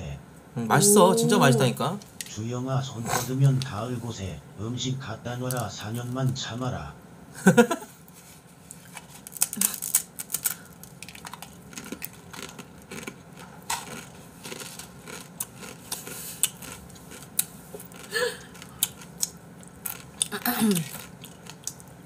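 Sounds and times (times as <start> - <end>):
wet chewing: 8.7 - 22.0.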